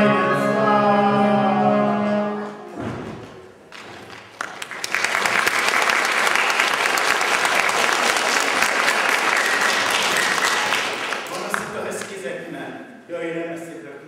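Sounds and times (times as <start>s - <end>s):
audience applauding: 3.7s - 12.2s.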